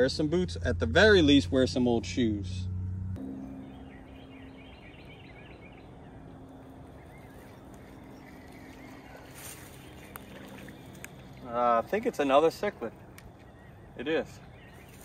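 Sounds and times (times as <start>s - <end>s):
low steady hum: 0.0s - 15.0s
distant birds chirping: 1.2s - 15.0s.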